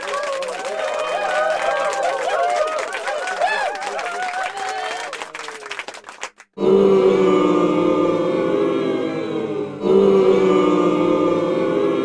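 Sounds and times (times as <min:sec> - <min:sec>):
choir chord: 0:06.6 - 0:12.0.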